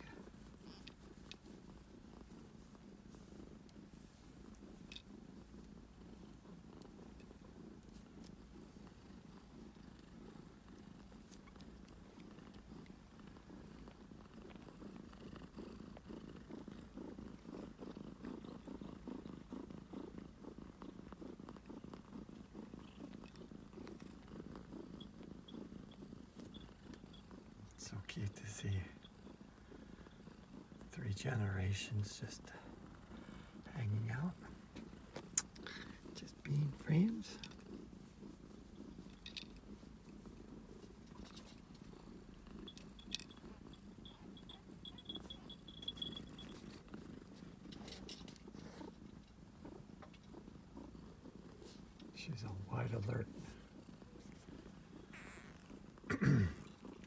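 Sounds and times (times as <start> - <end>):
cat purring: 0.0 - 57.0.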